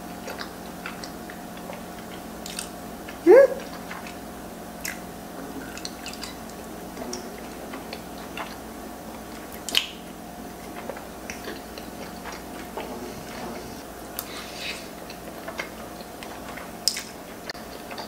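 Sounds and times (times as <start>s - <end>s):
faint steady hum: 0.0s - 18.0s
wet chewing mouth clicks: 0.2s - 4.2s, 4.8s - 5.1s, 9.3s - 13.4s, 14.2s - 18.0s.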